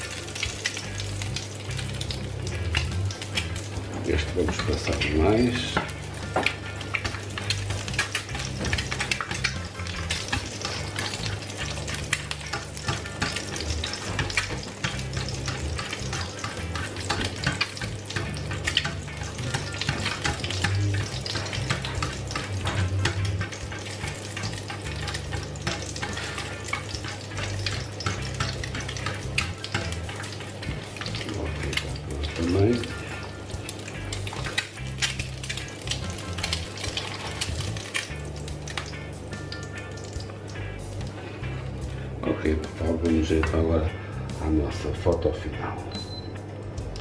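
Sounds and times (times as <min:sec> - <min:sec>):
egg sizzling in a pan: 0:00.0 - 0:44.3
spatula scraping a pan: 0:05.6 - 0:38.0.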